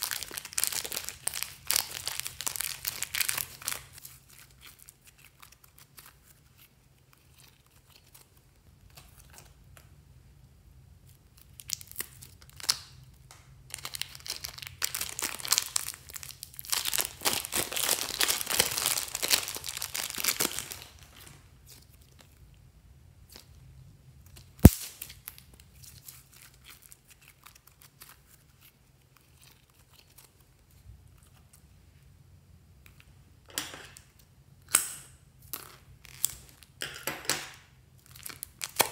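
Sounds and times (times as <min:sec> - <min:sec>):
plastic bag crinkling: 0:00.0 - 0:05.9, 0:13.7 - 0:22.3
sticky slime crackles: 0:00.0 - 0:09.8, 0:11.0 - 0:22.6, 0:23.2 - 0:31.7, 0:37.9 - 0:38.9.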